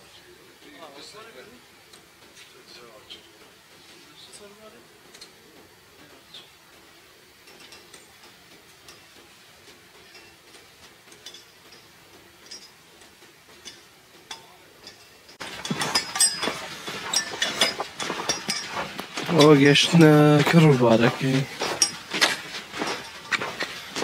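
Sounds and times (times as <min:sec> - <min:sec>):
footsteps crunching in snow: 0:15.4 - 0:24.0.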